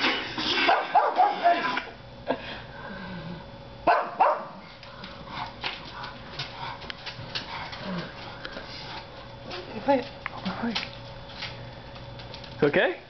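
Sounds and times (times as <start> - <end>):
dog barking: 0.6 - 1.7, 3.8 - 4.6
dog yipping: 0.7 - 1.6.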